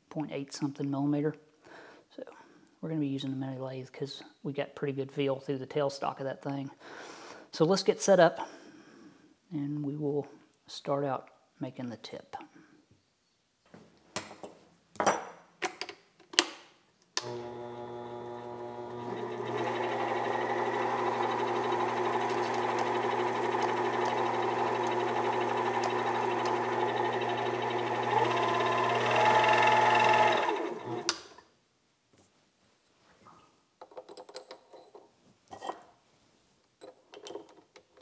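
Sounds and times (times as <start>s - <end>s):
lathe motor whine: 17.2s - 31.2s.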